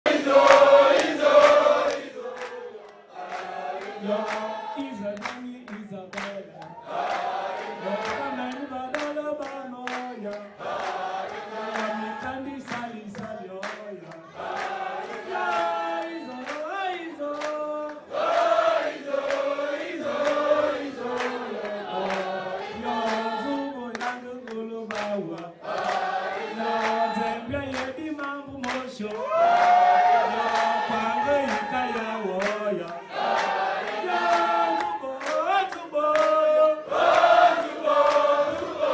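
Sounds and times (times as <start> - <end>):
crowd singing in chorus: 0.0 - 5.7, 6.4 - 38.9
hand-clapping: 0.0 - 38.9
man singing into microphone: 4.0 - 6.8, 7.8 - 10.6, 11.5 - 14.4, 15.4 - 18.1, 20.1 - 25.6, 26.5 - 33.1, 34.0 - 36.9.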